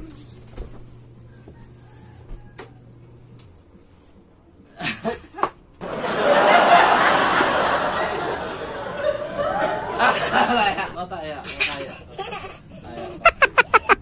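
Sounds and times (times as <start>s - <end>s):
people laughing: 4.8s - 11.0s, 11.7s - 14.0s.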